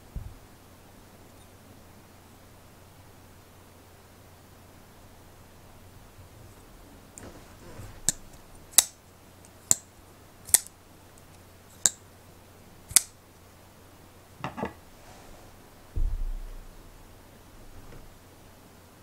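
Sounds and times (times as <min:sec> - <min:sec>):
folding knife clicking: 0:08.0 - 0:09.9, 0:10.5 - 0:12.0, 0:12.9 - 0:13.2
knife clattering on wooden table: 0:14.4 - 0:14.8.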